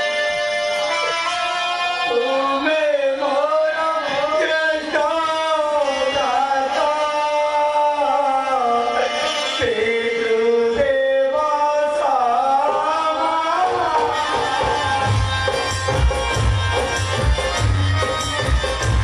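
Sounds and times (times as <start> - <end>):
person singing long notes: 0.0 - 19.0
low drum: 15.0 - 19.0.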